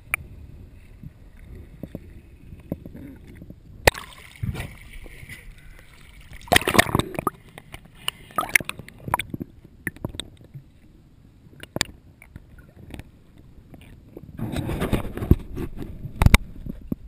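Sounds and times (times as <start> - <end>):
muffled underwater sound: 0.0 - 5.9
water splashing and sloshing: 0.0 - 17.0
gurgling bubbles: 2.6 - 7.6, 8.3 - 10.3
sharp underwater clicks: 2.7 - 4.7, 5.7 - 10.6, 11.6 - 13.1.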